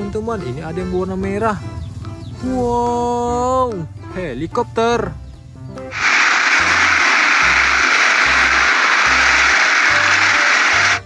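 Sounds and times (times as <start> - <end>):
loud continuous hissing: 5.9 - 11.0.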